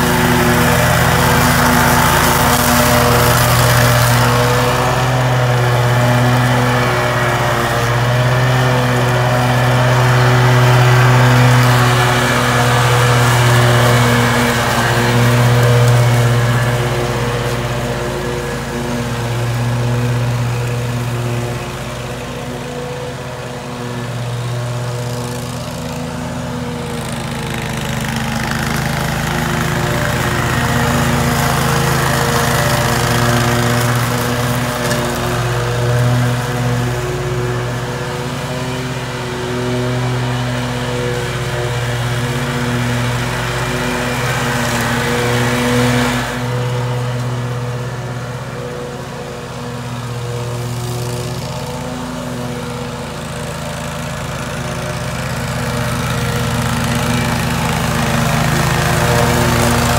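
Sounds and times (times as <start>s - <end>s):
lawn mower engine running: 0.0s - 59.9s.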